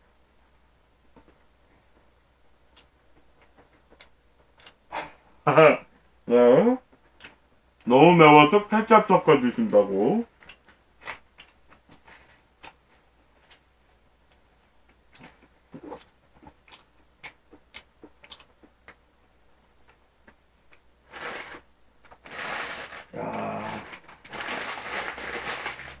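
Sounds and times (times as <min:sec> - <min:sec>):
clicks of eating food: 0:02.7 - 0:04.8, 0:07.0 - 0:07.4, 0:10.4 - 0:19.0
rustling and crumpling: 0:21.0 - 0:26.0.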